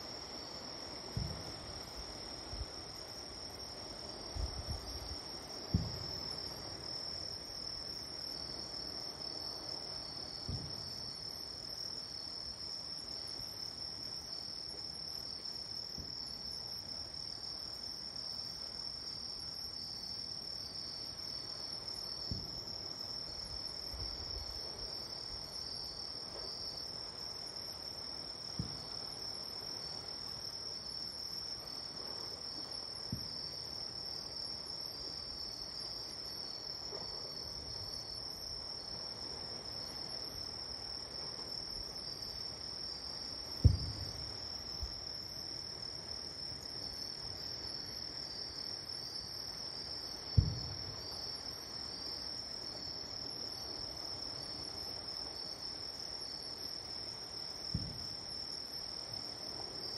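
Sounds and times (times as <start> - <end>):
distant fireworks booms: 1.1 - 1.8, 4.3 - 6.6, 10.4 - 11.2, 22.2 - 22.6, 28.5 - 29.0, 33.1 - 33.5, 43.6 - 44.9, 50.3 - 51.1, 57.7 - 58.2.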